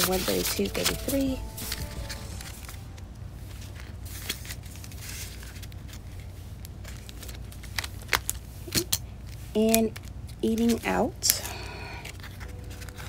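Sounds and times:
banknotes rustling: 0:00.0 - 0:09.4, 0:12.0 - 0:13.0.

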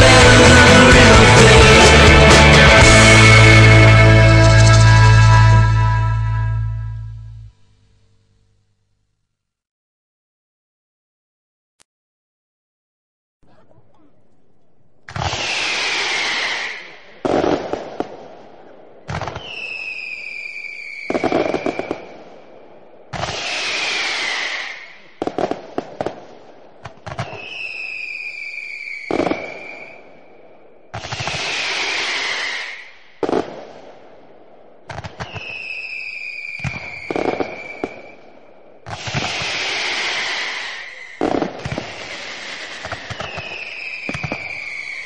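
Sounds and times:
long descending firework whistle: 0:02.8 - 0:07.5, 0:15.1 - 0:17.6, 0:19.1 - 0:22.5, 0:23.2 - 0:25.6, 0:27.1 - 0:33.4, 0:35.1 - 0:45.0
aerial firework crackling pops: 0:15.1 - 0:18.4, 0:19.1 - 0:19.7, 0:20.9 - 0:22.4, 0:23.1 - 0:29.9, 0:30.9 - 0:34.0, 0:34.8 - 0:45.0
firework crackling burst: 0:15.1 - 0:45.0
spark fountain hiss: 0:38.9 - 0:45.0.

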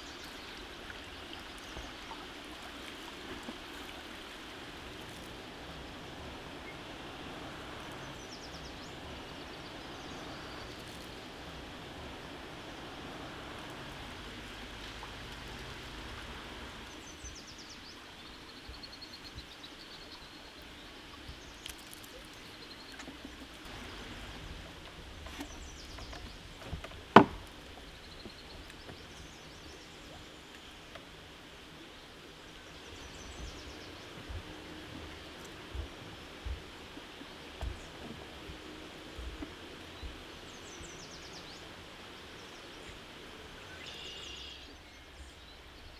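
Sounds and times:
bird singing: 0:07.9 - 0:11.2, 0:43.6 - 0:45.9.

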